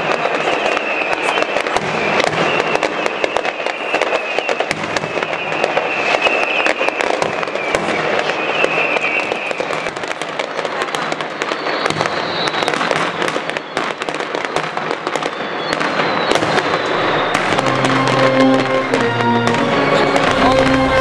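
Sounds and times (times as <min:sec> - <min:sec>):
firecrackers crackling and banging: 0:00.0 - 0:21.0
music: 0:17.3 - 0:21.0.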